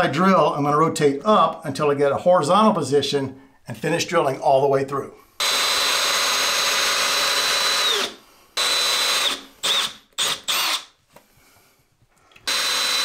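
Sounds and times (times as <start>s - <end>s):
cordless drill drilling into tile: 5.4s - 11.0s, 12.4s - 13.0s.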